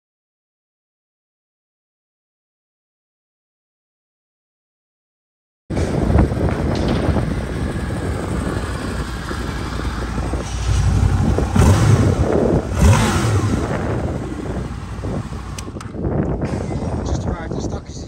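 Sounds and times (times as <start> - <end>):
motorcycle engine idling and revving: 5.7 - 18.0.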